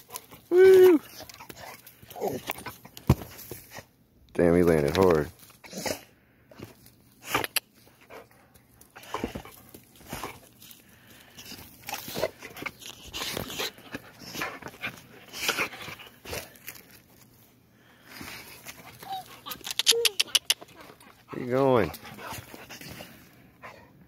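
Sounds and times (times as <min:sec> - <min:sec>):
paws scuffling in sandy dirt: 0:20.6 - 0:23.4.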